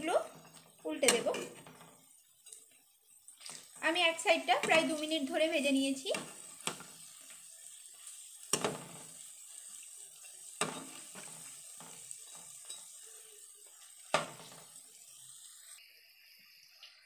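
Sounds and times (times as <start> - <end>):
food sizzling in hot oil: 0.0 - 17.0
metal spoon knocking on pan: 1.0 - 1.9, 4.4 - 5.1, 8.5 - 9.0, 10.6 - 12.9.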